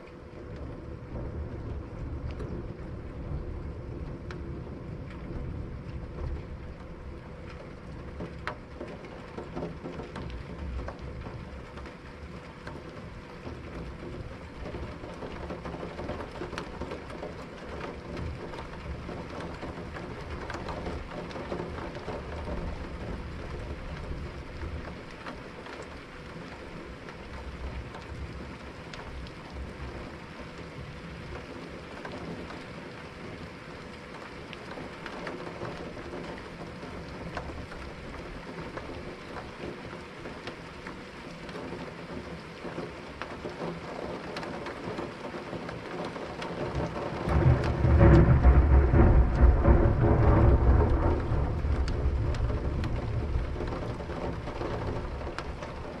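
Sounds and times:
rain pattering: 0.0 - 56.0
distant thunder rumble: 0.4 - 11.8, 45.9 - 56.0.

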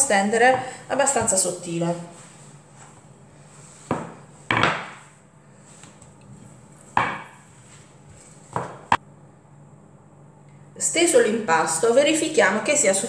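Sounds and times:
rolling pin knocking on board: 3.9 - 5.0, 7.0 - 7.4, 8.5 - 9.0.

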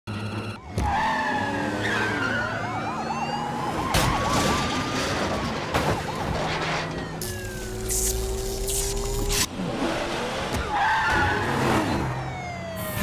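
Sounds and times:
siren yelping: 0.1 - 9.4, 10.6 - 13.0.

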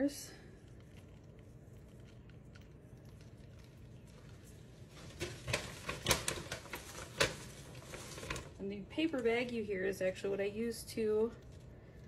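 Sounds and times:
paper bag rustling: 4.2 - 9.2.

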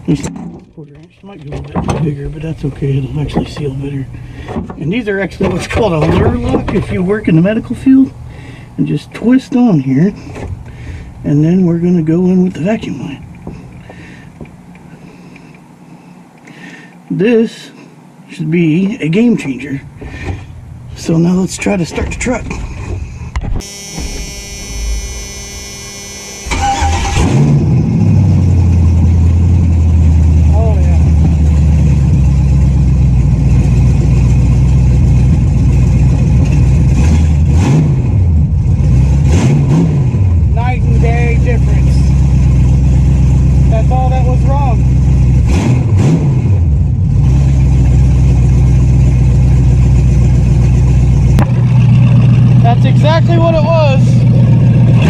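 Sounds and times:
engine cranking and idling: 0.0 - 14.9, 26.4 - 55.0.

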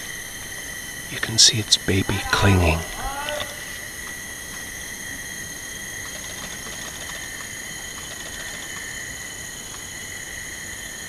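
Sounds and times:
insect chorus shrill tones: 0.0 - 11.0
faint ticks: 6.0 - 9.0, 9.6 - 9.9.

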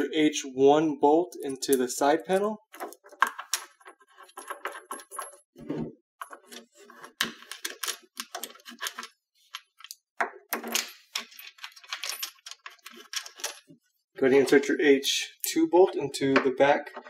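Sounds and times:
bolts and washers clinking: 1.3 - 14.7.

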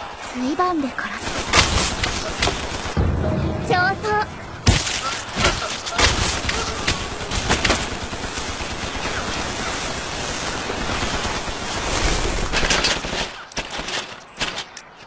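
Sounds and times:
rapid machine-gun fire: 1.2 - 3.0, 6.0 - 14.0.

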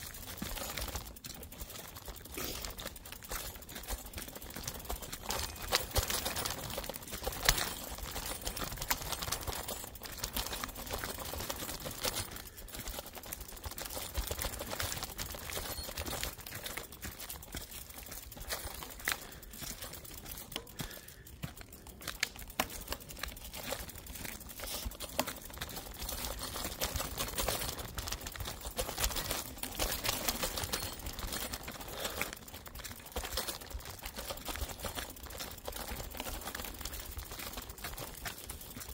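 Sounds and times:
bike rattling over rough trail: 0.0 - 38.9.

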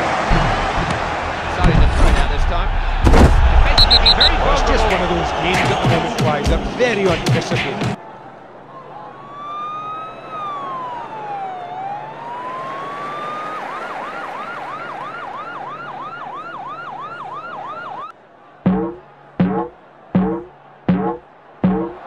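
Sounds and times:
siren wailing and yelping: 9.2 - 18.1.

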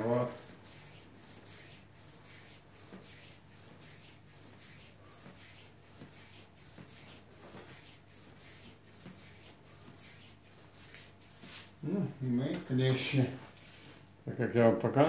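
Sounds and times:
hands rubbing skin: 0.0 - 11.8.

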